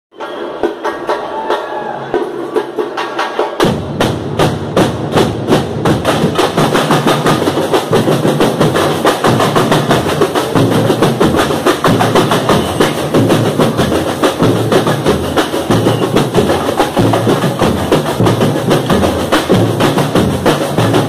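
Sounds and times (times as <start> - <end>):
samba drums playing: 0.1 - 21.0.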